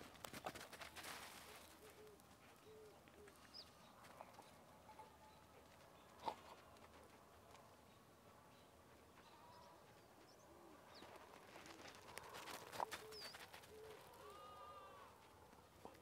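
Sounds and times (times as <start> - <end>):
bird calling softly: 9.2 - 15.2.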